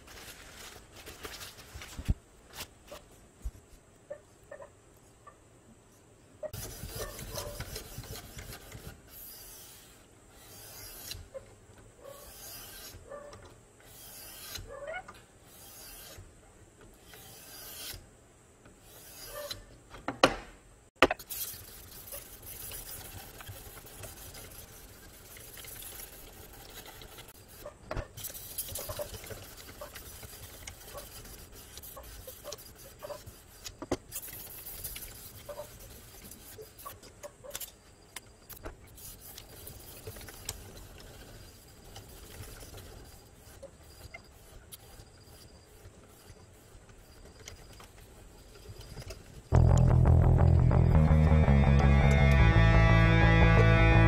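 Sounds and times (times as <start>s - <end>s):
sharpening stone rasping on blade: 18.9s - 19.5s.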